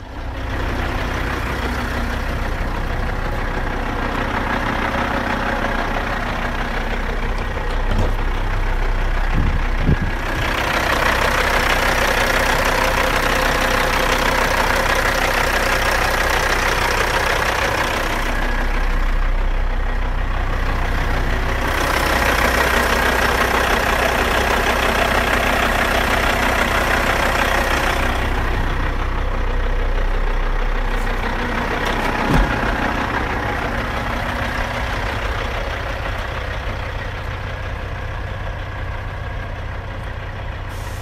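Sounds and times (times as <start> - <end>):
diesel truck engine idling: 0.0 - 41.0
brief thump: 32.3 - 32.6.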